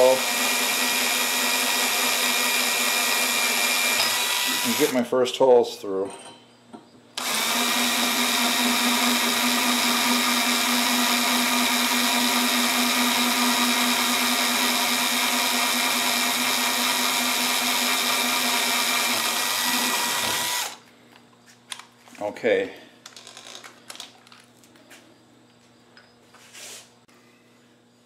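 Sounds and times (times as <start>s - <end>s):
cordless drill boring metal pipe: 0.0s - 5.0s, 7.2s - 20.8s.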